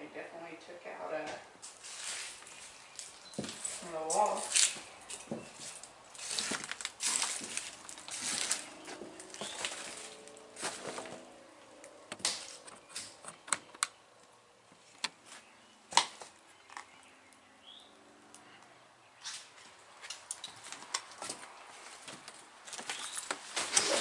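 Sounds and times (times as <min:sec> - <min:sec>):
footsteps crunching over rubble: 0:01.6 - 0:13.2, 0:19.2 - 0:24.0.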